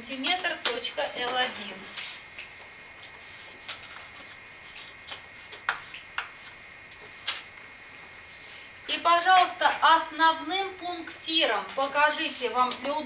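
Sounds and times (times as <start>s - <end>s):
chalk tapping on chalkboard: 4.7s - 6.4s.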